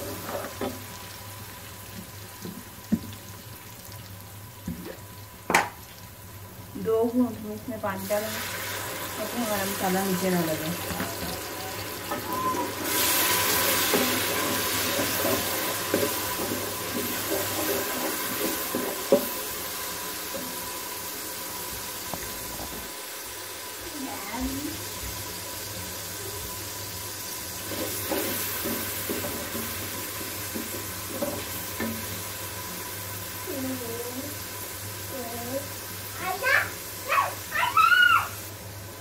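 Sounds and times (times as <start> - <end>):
oil sizzling in a pot: 0.0 - 39.0
water splashing into hot oil: 1.2 - 6.5, 7.9 - 25.2.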